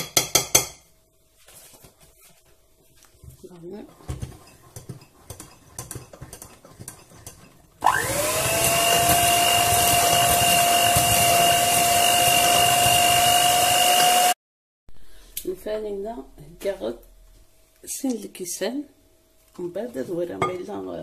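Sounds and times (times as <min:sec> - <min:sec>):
electric hand mixer whining: 0:07.8 - 0:14.4.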